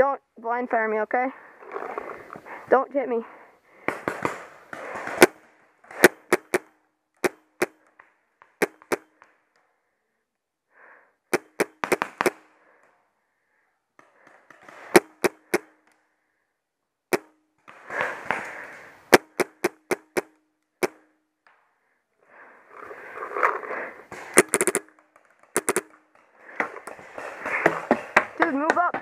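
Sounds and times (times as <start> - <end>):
paintball markers popping: 6.0 - 7.8, 8.4 - 9.3, 11.3 - 12.4, 14.0 - 16.0, 19.1 - 21.6, 24.2 - 27.0.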